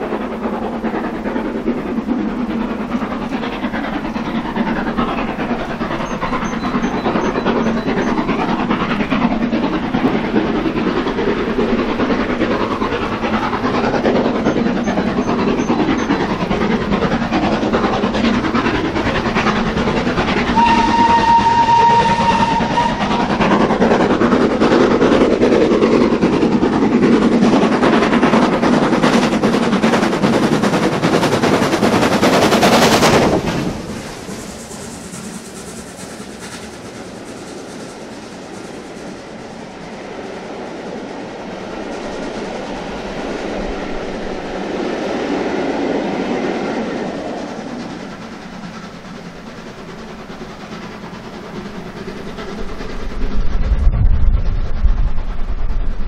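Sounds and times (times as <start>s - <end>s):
steam locomotive running: 0.0s - 56.0s
locomotive whistle blast: 20.5s - 23.1s.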